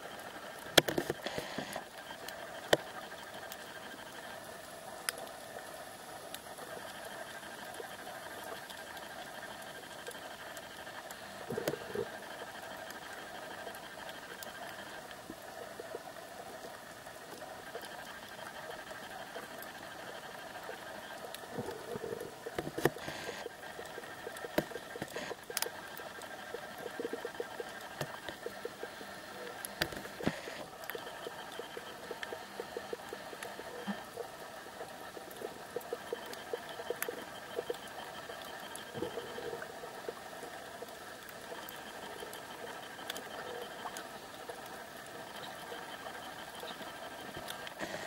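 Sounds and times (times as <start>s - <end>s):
underwater clicks and crackles: 0.0s - 48.0s
underwater hum and whine: 0.0s - 48.0s.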